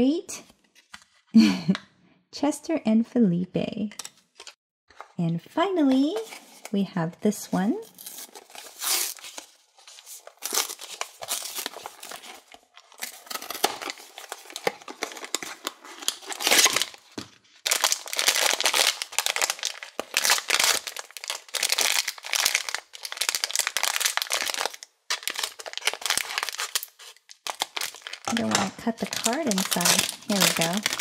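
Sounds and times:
foil bag crinkling: 7.9s - 31.0s.

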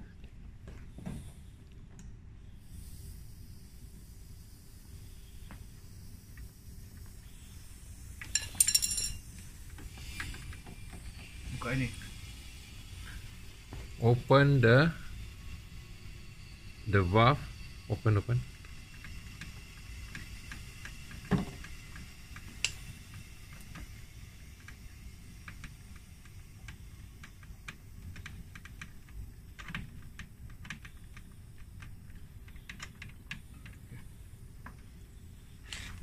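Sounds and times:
clicks and taps on metal fittings: 8.2s - 9.2s, 20.1s - 23.9s, 25.4s - 34.0s.

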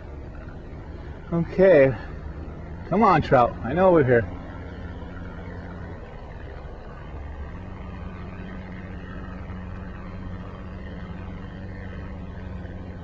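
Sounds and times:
electric boat motor humming: 0.0s - 13.0s.

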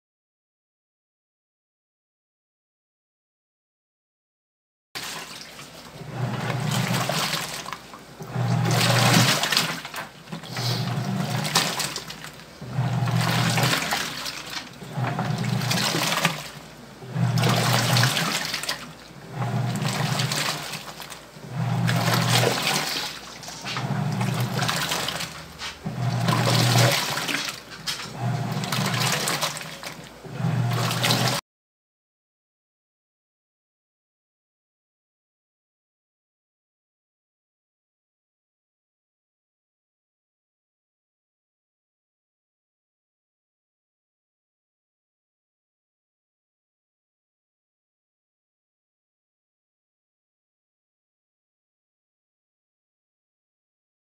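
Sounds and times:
washing machine motor humming: 5.0s - 31.4s
water and clothes churning: 5.0s - 31.4s.

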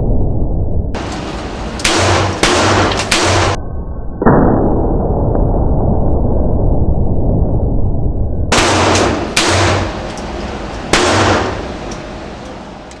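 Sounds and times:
pistol shots: 1.8s - 3.6s, 8.5s - 12.5s.

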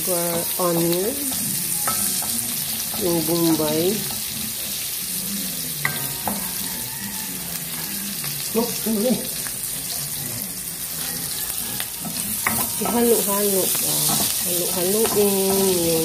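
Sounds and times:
meat and onion sizzling in oil: 0.0s - 16.0s
utensil tapping pan: 0.2s - 4.4s, 5.8s - 6.8s, 11.8s - 16.0s.

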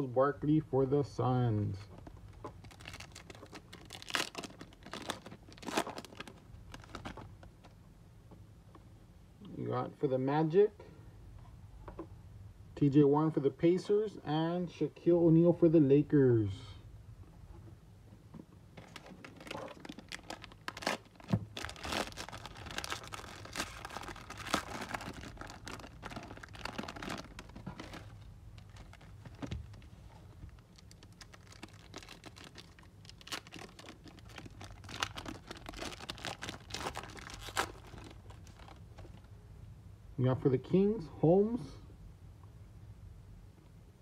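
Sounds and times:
card pack wrappers tearing: 2.6s - 7.2s, 18.8s - 29.9s, 30.6s - 38.8s.

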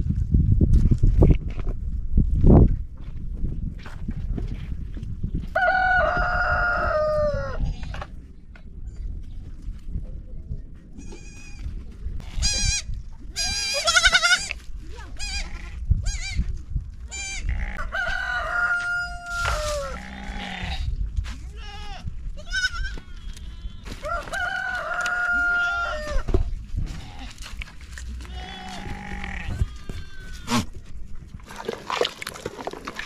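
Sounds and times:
rooster crowing: 5.6s - 7.6s, 17.8s - 20.0s, 24.0s - 26.3s
goats bleating: 12.2s - 14.6s, 28.2s - 30.7s.

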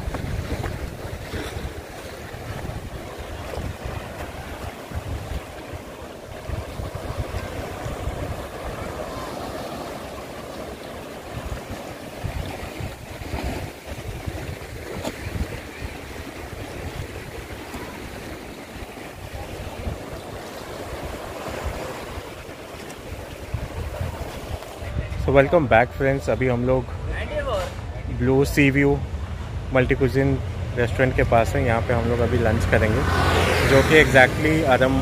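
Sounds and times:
sea waves washing against rocks: 0.0s - 25.1s
wind gusting on microphone: 0.0s - 35.0s.

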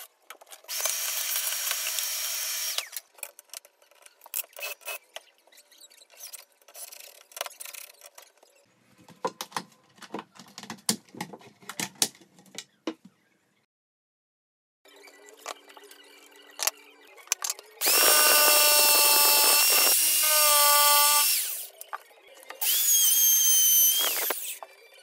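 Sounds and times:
cordless drill running: 0.7s - 2.9s, 17.8s - 21.7s, 22.6s - 24.6s
hardware and tools clicking: 16.5s - 24.7s.

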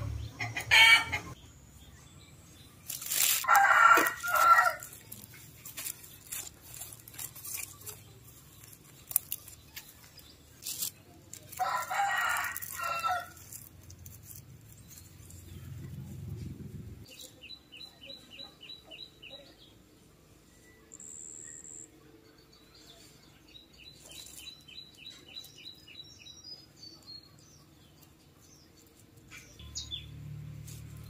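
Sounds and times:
hands scraping loose soil: 2.8s - 15.6s
rooster crowing: 3.4s - 4.9s, 11.6s - 13.4s.

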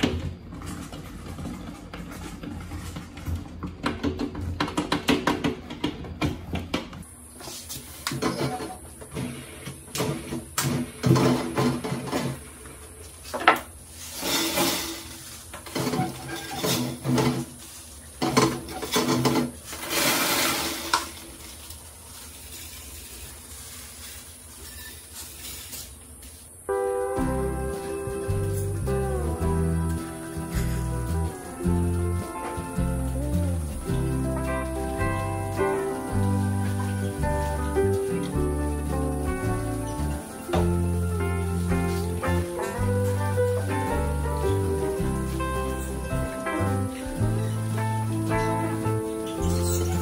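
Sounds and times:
knocks and clatter of handled parts: 0.0s - 7.0s, 13.2s - 21.1s
dry grain pouring into glass tank: 13.9s - 18.0s, 18.8s - 26.0s
rats scrabbling and scratching: 14.0s - 26.5s.

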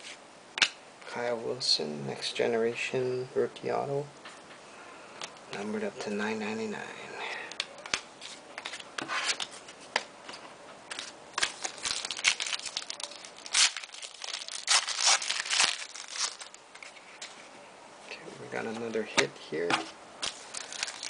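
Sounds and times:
foil wrapper crinkling and tearing: 11.0s - 16.9s, 20.2s - 21.0s.

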